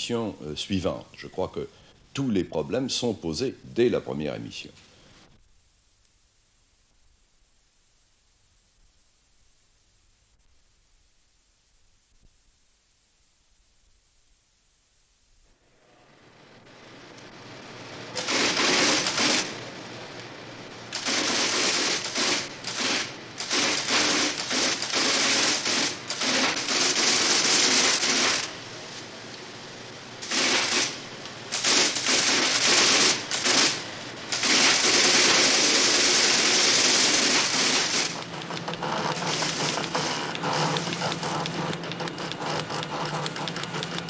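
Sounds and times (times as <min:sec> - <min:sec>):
loud hissing bursts: 0:16.3 - 0:20.0, 0:20.9 - 0:40.8.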